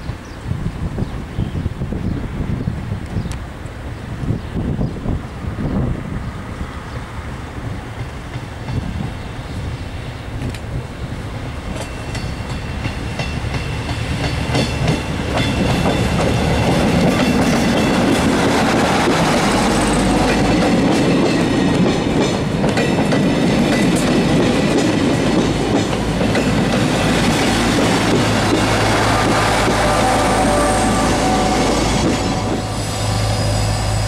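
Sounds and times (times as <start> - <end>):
diesel train passing: 0.0 - 34.0
wheels clicking over rail joints: 11.6 - 30.5.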